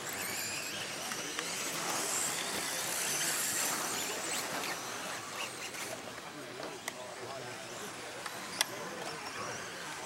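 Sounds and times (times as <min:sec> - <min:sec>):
electric motor whine: 0:00.0 - 0:06.7.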